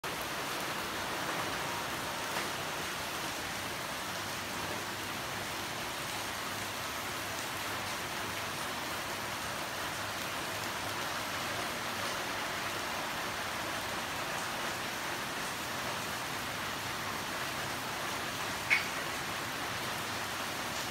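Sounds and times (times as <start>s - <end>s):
rain falling on pond and foliage: 0.0s - 20.9s.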